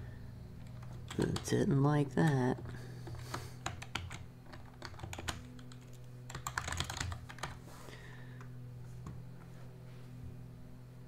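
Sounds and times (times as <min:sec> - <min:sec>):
faint low hum: 0:00.0 - 0:11.0
keyboard typing clicks: 0:02.2 - 0:07.6.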